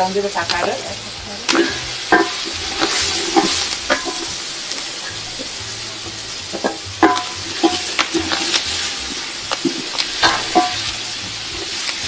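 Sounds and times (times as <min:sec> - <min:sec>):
vegetables sizzling in oil: 0:00.0 - 0:12.0
utensil scraping and clinking pan: 0:01.5 - 0:05.6, 0:06.5 - 0:12.0.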